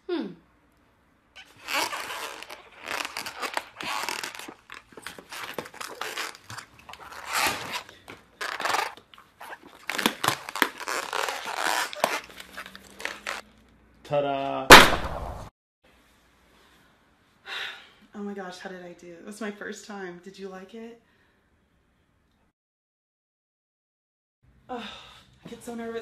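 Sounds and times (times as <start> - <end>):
rubber rubbing and stretching: 1.4 - 13.5
rubber squeaks: 1.4 - 13.5.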